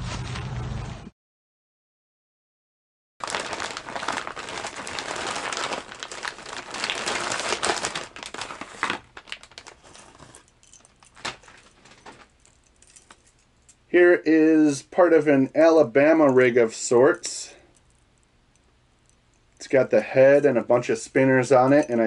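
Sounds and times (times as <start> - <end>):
plastic bag crinkling: 3.2 - 13.5.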